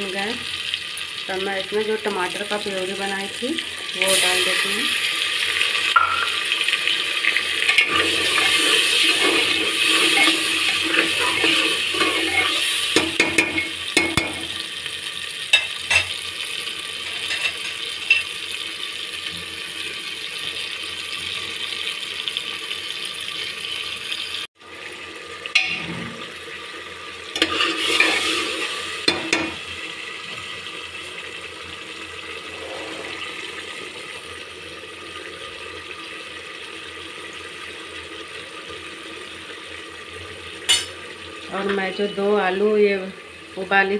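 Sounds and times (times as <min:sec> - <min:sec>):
sauce sizzling and bubbling in oil: 0:00.0 - 0:43.9
spoon knocking against pot: 0:06.0 - 0:06.4, 0:13.0 - 0:14.5.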